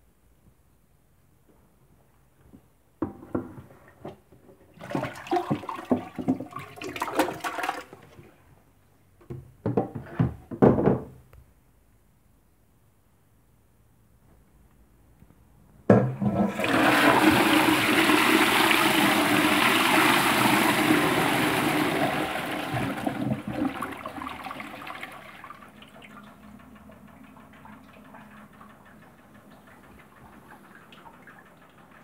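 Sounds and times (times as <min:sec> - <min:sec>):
toilet flushing: 0:04.7 - 0:08.3, 0:15.9 - 0:32.0
water running: 0:16.1 - 0:32.0.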